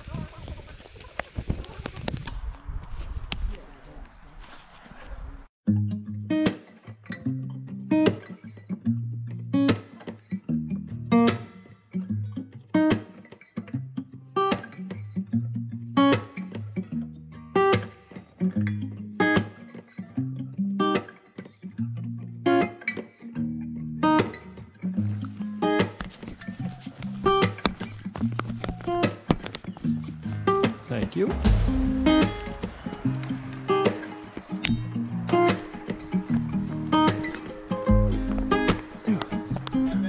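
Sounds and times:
guitar over a steady beat: 0:05.7 - 0:40.0
bass notes: 0:29.9 - 0:33.9, 0:34.6 - 0:40.0
sharp percussion hits: 0:30.4 - 0:39.4.

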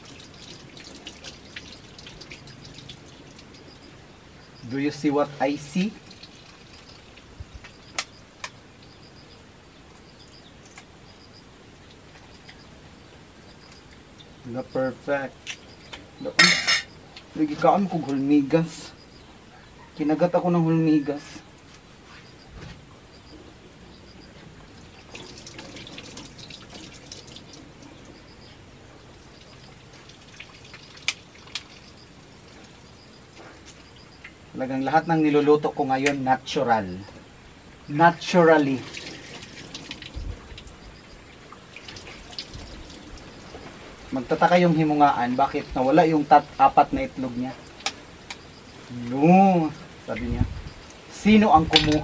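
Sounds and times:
water trickling from sink tap: 0:00.0 - 0:03.8, 0:05.7 - 0:07.3, 0:25.0 - 0:27.9, 0:29.1 - 0:32.0, 0:38.6 - 0:40.7, 0:41.6 - 0:43.5.

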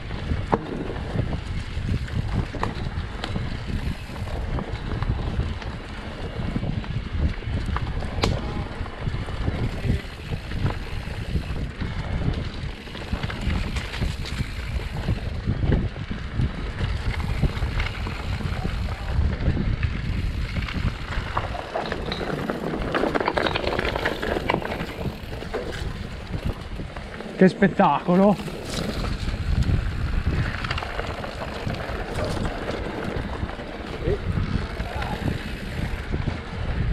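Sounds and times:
bike knocking and rattling: 0:00.0 - 0:36.9
wind buffeting microphone: 0:00.0 - 0:36.9.

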